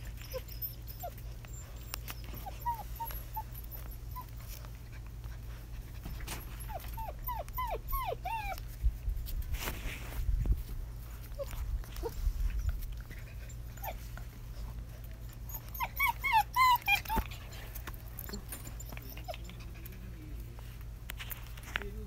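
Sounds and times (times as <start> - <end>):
puppies playing roughly: 0.0 - 21.7
puppy high-pitched cries: 0.1 - 4.4, 6.6 - 8.6, 15.4 - 17.5.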